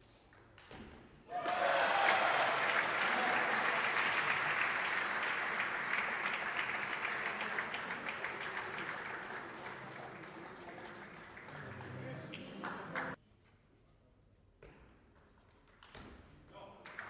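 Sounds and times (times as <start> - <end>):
audience applauding: 1.3 - 13.2.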